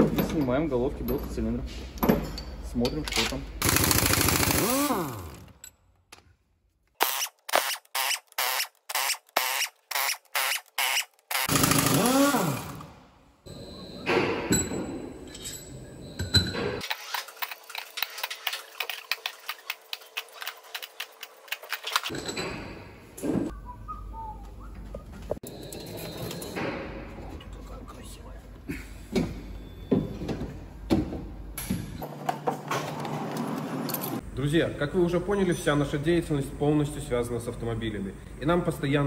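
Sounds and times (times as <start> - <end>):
pneumatic impact wrench bursts: 3.6 - 5.5, 7.0 - 12.9.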